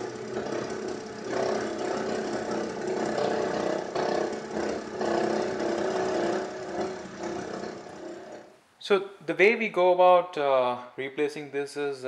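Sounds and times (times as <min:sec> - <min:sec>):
car engine idling: 0:00.0 - 0:08.5.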